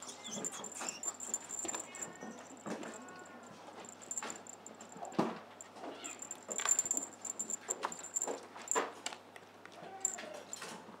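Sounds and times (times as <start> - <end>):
thin high tone: 0.1 - 5.1.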